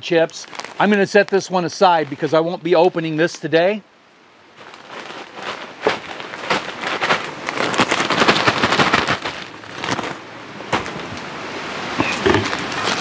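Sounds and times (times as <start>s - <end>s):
plastic packaging crinkling: 0.2s - 3.4s, 4.6s - 10.2s.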